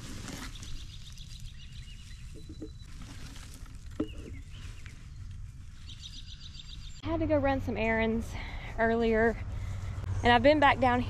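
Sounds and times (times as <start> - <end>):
dry straw rustling: 0.0 - 6.8
bird chirping: 0.5 - 3.0, 4.0 - 7.1
low background rumble: 3.7 - 11.0.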